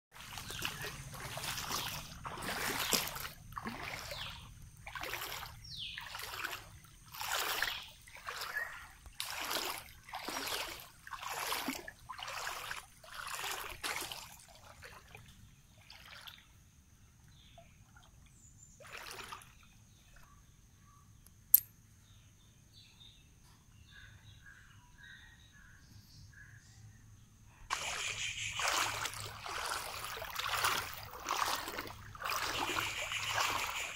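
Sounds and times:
water splashing and sloshing: 0:00.1 - 0:20.3, 0:27.7 - 0:33.9
faint water trickling: 0:00.2 - 0:20.6, 0:27.7 - 0:33.9
sharp click: 0:21.5 - 0:21.7.

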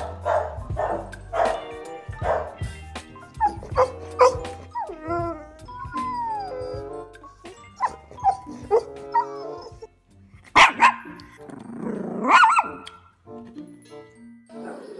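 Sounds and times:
dog barking: 0:00.0 - 0:01.6, 0:02.2 - 0:02.6, 0:03.4 - 0:04.4, 0:10.6 - 0:11.2, 0:12.2 - 0:12.9.

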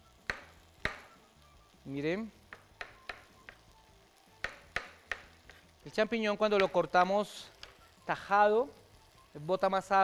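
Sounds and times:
knife tapping on cutting board: 0:00.3 - 0:01.1, 0:02.5 - 0:03.6, 0:04.4 - 0:05.4.

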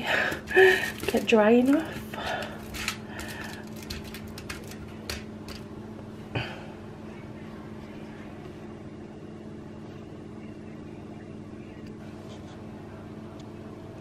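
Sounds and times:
low appliance hum: 0:00.0 - 0:14.0
aluminium foil crinkling: 0:00.1 - 0:05.7.

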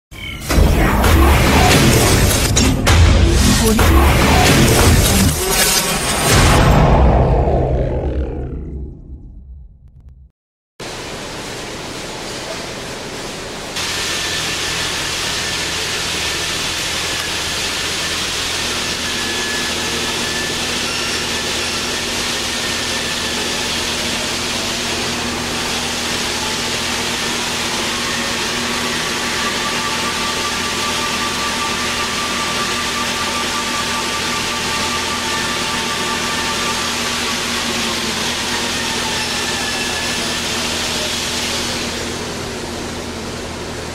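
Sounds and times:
metal lathe motor whine: 0:13.8 - 0:43.9.

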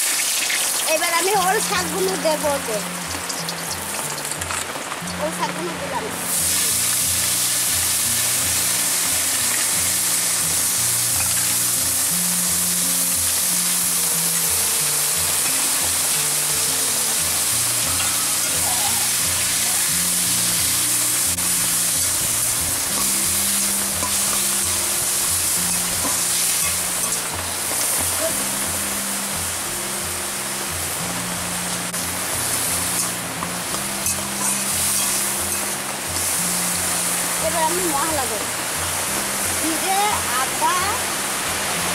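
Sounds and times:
vegetables sizzling in oil: 0:00.0 - 0:41.9
background music: 0:00.2 - 0:41.9
metal spatula stirring: 0:34.0 - 0:35.8.

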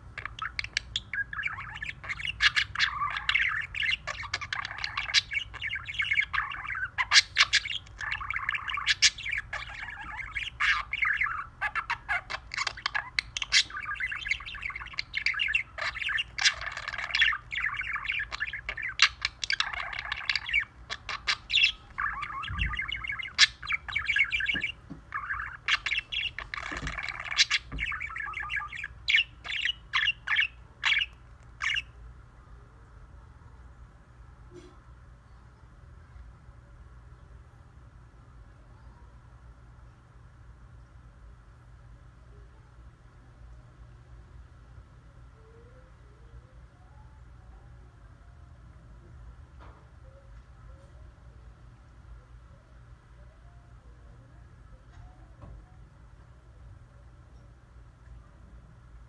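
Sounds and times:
budgie warbling: 0:00.1 - 0:31.8.

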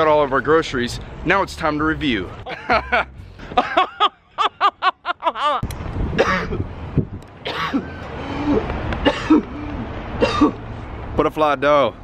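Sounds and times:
man coughing hard: 0:06.2 - 0:06.6, 0:07.4 - 0:09.6, 0:10.2 - 0:10.6.

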